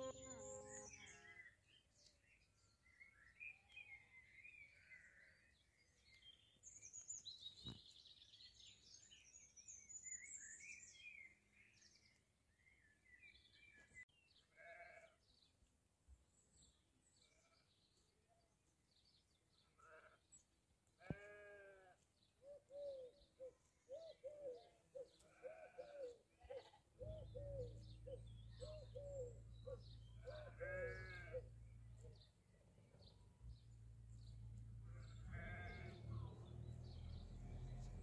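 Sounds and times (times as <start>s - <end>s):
distant sheep bleating: 14.5s - 15.2s, 21.0s - 22.0s, 25.3s - 25.9s, 30.2s - 31.6s, 34.8s - 36.4s.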